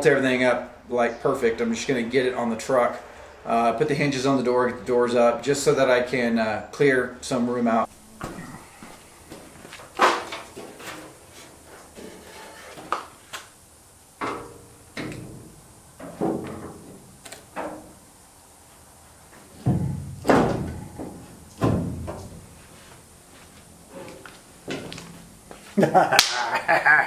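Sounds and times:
sheet metal knocks and clunks: 14.2s - 17.0s, 19.6s - 22.5s.

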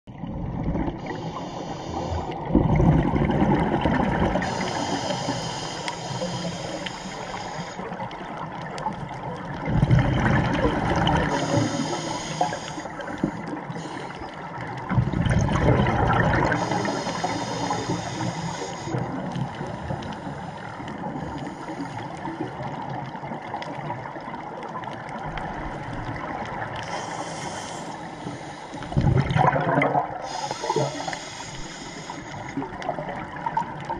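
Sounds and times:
exhaled air bubbling: 0.1s - 33.9s
regulator inhalation hiss: 1.0s - 2.5s, 4.4s - 7.9s, 11.2s - 14.3s, 16.4s - 19.2s, 26.8s - 29.0s, 30.2s - 32.6s.

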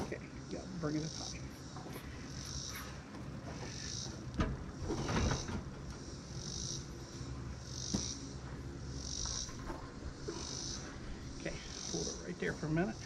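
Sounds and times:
insects buzzing: 0.0s - 13.0s
metal clunk and rattle: 2.8s - 6.4s.

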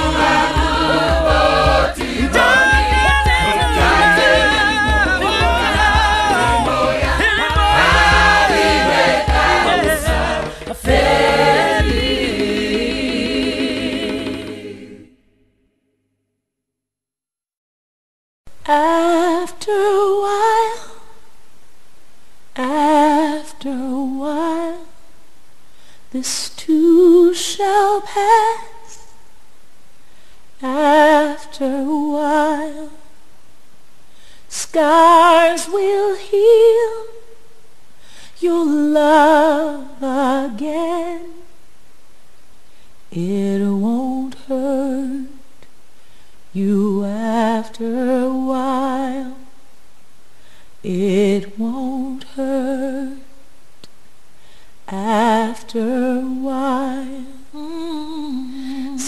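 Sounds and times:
woman singing unaccompanied: 0.0s - 12.9s, 18.6s - 21.2s, 22.5s - 25.0s, 26.1s - 29.1s, 30.6s - 33.1s, 34.5s - 37.4s, 38.4s - 41.6s, 43.1s - 45.5s, 46.5s - 49.6s, 50.8s - 53.4s, 54.9s - 59.0s.

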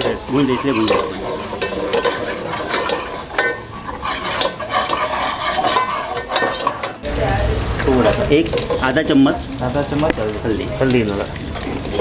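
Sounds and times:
metal ladle scraping metal pot: 0.0s - 7.1s
oil sizzling: 0.0s - 12.0s.

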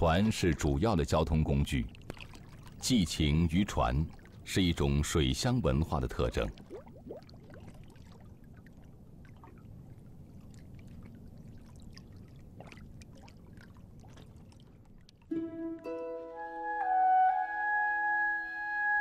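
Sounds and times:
oars splashing water: 0.0s - 15.3s
water lapping: 0.0s - 15.4s.

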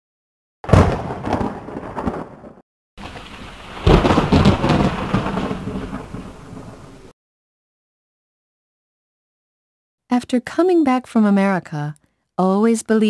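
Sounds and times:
deep earthquake rumble with crackle: 0.8s - 7.1s.

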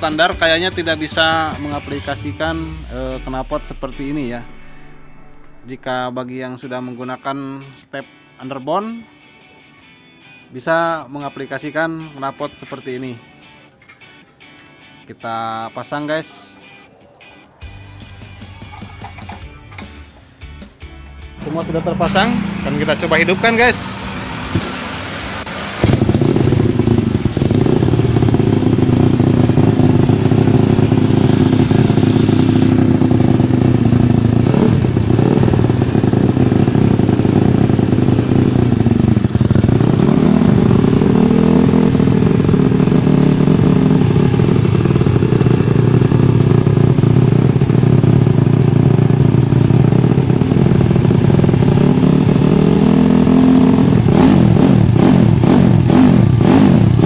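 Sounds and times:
motorcycle engine idling and revving: 0.0s - 6.0s, 17.6s - 57.0s.

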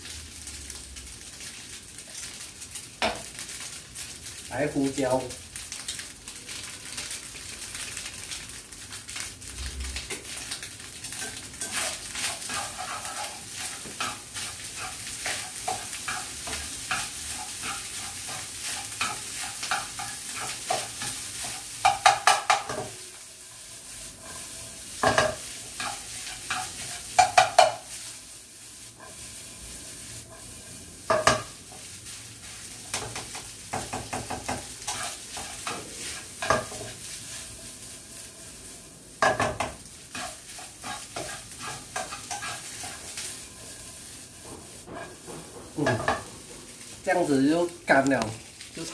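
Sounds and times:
rice sizzling in a frying pan: 0.0s - 48.9s
spatula scraping a pan: 11.1s - 28.2s, 28.8s - 46.9s
spatula knocking against pan: 21.8s - 22.9s, 27.2s - 27.8s, 32.9s - 34.7s.

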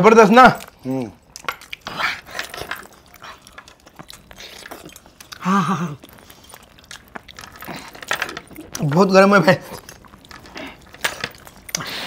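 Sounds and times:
person chewing: 0.6s - 9.0s, 9.6s - 12.0s
person humming grunt: 5.4s - 6.0s.

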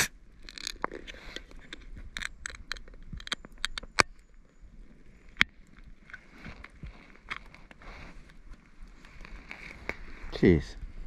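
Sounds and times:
campfire crackling: 0.0s - 11.0s.

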